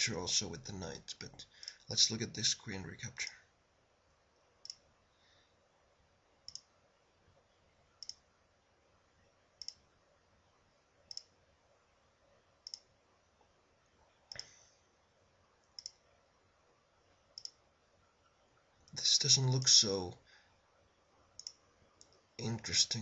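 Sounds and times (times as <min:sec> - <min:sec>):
computer mouse clicking: 0:04.6 - 0:04.9, 0:06.5 - 0:06.7, 0:08.0 - 0:08.2, 0:09.6 - 0:09.8, 0:11.1 - 0:11.3, 0:12.6 - 0:12.9, 0:15.6 - 0:16.0, 0:17.4 - 0:17.6, 0:21.4 - 0:22.2.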